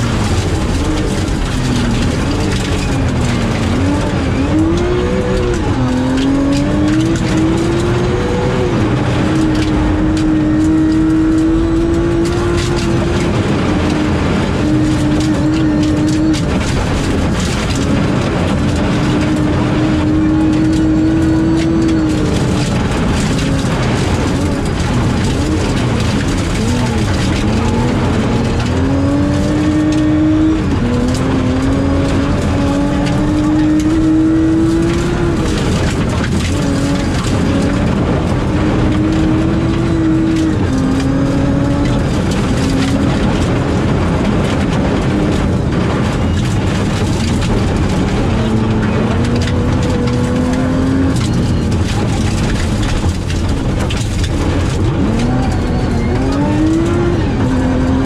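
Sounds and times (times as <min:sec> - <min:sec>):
gravel and tyre noise: 0:00.0 - 0:58.0
rally car engine revving: 0:00.0 - 0:58.0.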